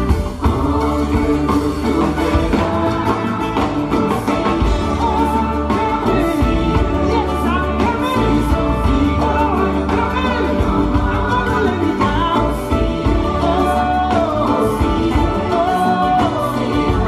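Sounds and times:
acoustic guitar: 0.0 - 17.0
bass guitar: 0.0 - 17.0
drum kit: 0.0 - 17.0
electric guitar: 0.0 - 17.0.

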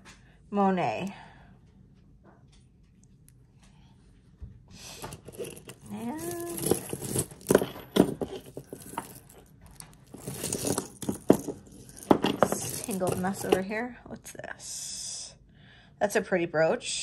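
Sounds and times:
rustling packing: 4.8 - 13.7
small metal pieces clinking: 5.0 - 13.7.

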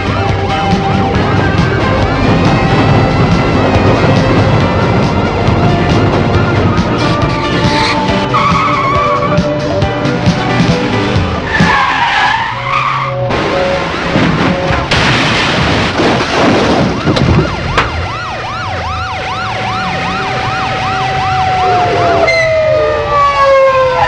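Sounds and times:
police siren wailing: 0.0 - 9.9, 11.4 - 14.9, 16.7 - 24.0
tyres screeching: 6.4 - 9.7, 11.4 - 13.3
car and impact noise: 13.3 - 18.1.

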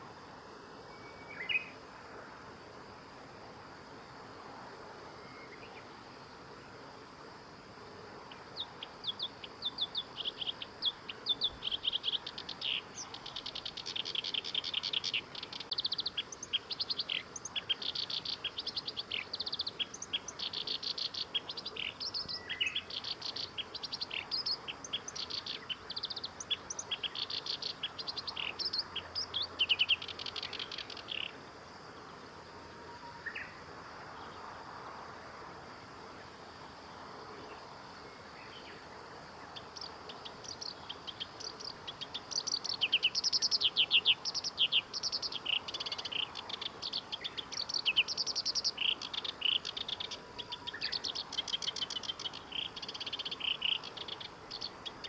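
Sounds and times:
reed warbler singing: 0.9 - 1.8, 8.2 - 31.4, 37.4 - 55.0.

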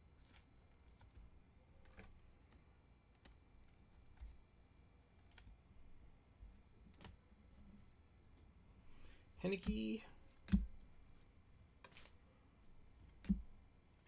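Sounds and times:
faint clicks of cards handled: 0.1 - 4.5, 5.1 - 5.7, 6.4 - 14.0.

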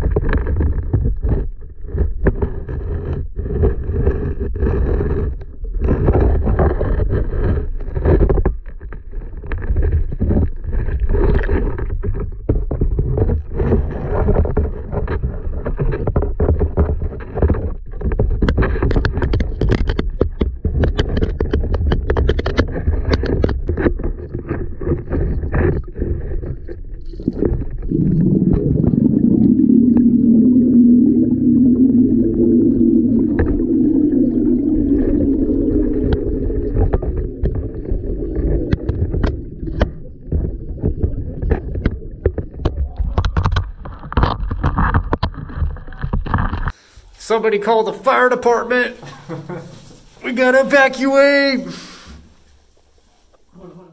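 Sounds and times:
muffled underwater knocks and scrapes: 0.0 - 29.3, 35.8 - 47.1
low hum: 27.8 - 39.6.

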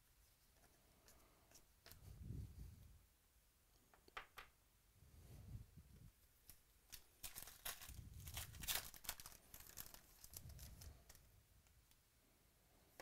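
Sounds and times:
foil wrapper crinkling: 6.9 - 11.2.

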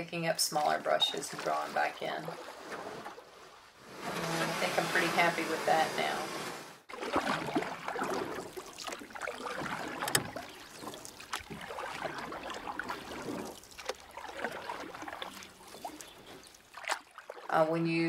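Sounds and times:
water sloshing and splashing: 0.0 - 17.8.

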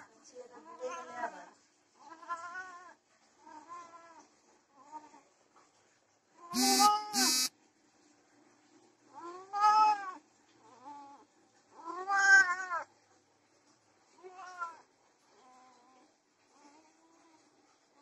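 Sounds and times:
cat yowling: 6.6 - 7.5, 11.8 - 12.8.

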